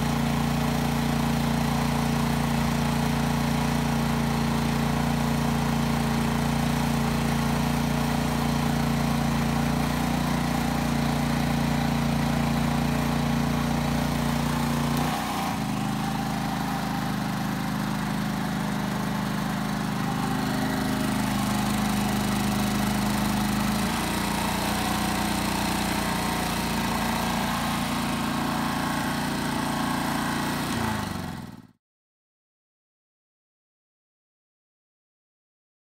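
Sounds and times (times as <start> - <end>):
generator engine running: 0.0 - 31.7.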